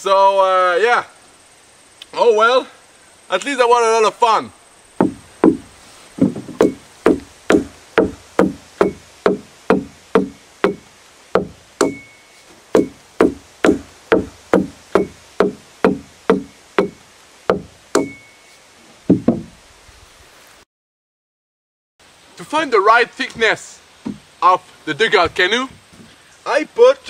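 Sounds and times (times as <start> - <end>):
adze chopping wood: 5.0 - 18.3, 19.1 - 19.5.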